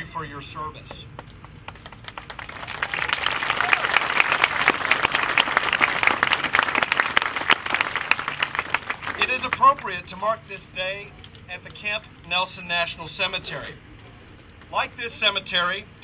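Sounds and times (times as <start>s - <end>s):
audience applauding: 1.7s - 9.6s.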